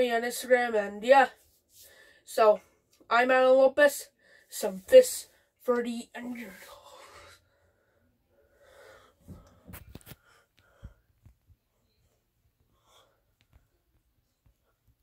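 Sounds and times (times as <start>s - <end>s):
soft breaths: 1.4s - 2.9s, 6.4s - 15.0s.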